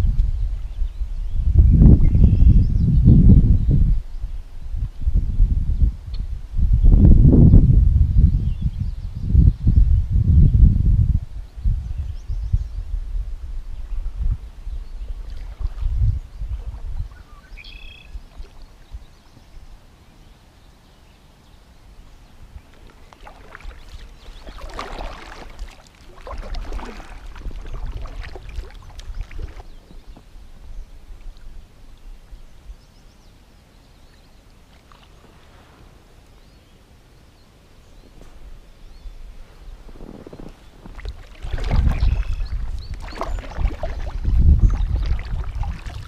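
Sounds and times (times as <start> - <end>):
wind rumble on microphone: 0.0 - 19.9, 22.0 - 33.3, 37.8 - 46.0
kayak paddle strokes in water: 22.5 - 31.6, 39.9 - 46.0.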